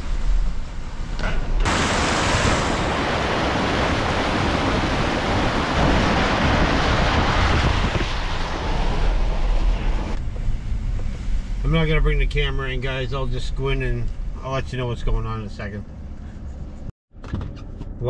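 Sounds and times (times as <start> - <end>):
heavy rain pouring: 1.6 - 10.2.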